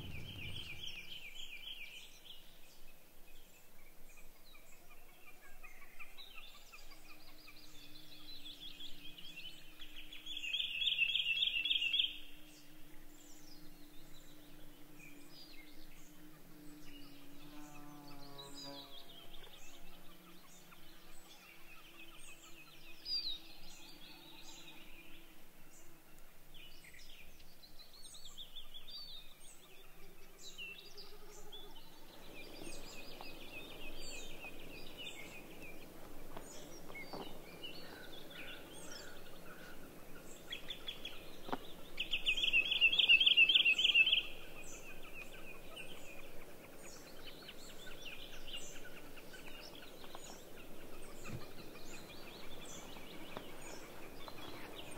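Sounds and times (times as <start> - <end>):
loud rapid bird trill: 0.0 - 1.4
songbirds chirping and singing: 0.0 - 54.9.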